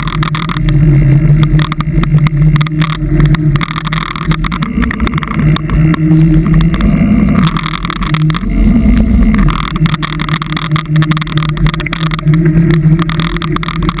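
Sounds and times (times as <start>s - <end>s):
sharp clicks and knocks: 0.0s - 14.0s
vehicle engine droning: 0.0s - 14.0s.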